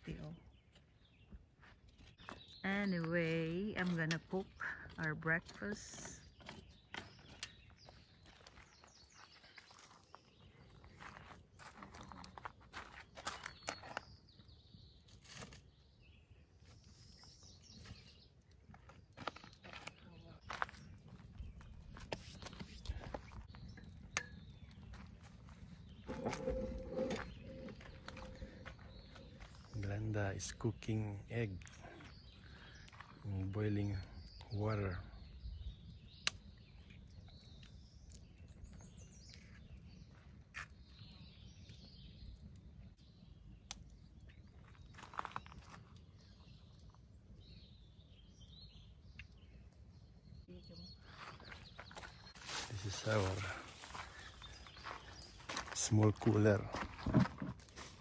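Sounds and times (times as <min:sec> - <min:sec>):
faint bird chirps: 0:25.6 - 0:30.1, 0:31.6 - 0:55.5
feet crunching on gravel: 0:51.2 - 0:58.0.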